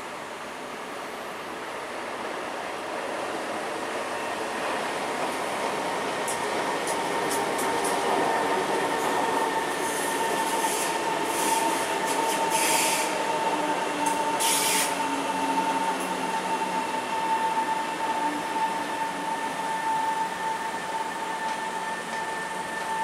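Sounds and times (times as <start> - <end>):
high-pitched train whine: 0.0 - 23.0.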